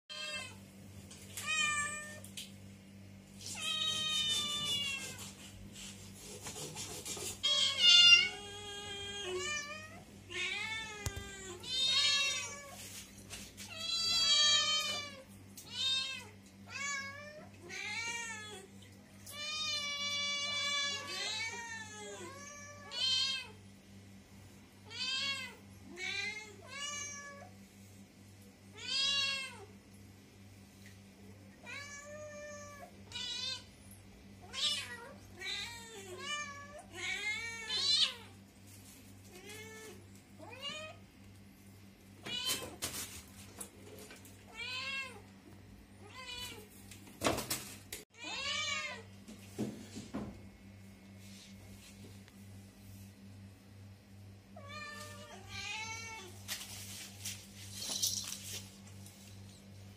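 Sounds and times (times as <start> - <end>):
cats meowing: 3.4 - 5.4, 7.2 - 12.9, 13.7 - 18.7, 19.3 - 23.6.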